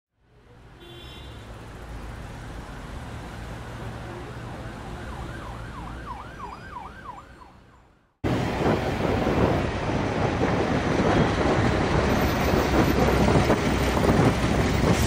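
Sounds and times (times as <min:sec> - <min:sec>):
street background hum: 0:00.2 - 0:15.0
siren wailing: 0:04.2 - 0:08.0.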